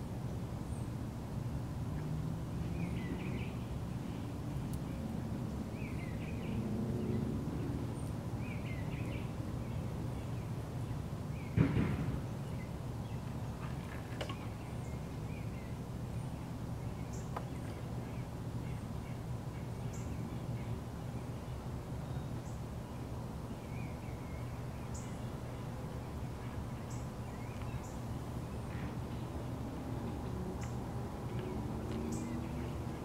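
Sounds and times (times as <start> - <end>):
sharp knock: 11.6 - 12.2.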